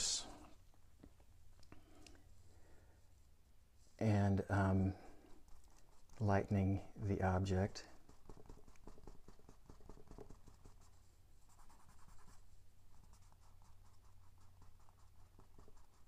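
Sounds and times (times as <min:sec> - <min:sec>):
drawing tool scratching on paper: 0:05.3 - 0:06.5, 0:07.9 - 0:16.0.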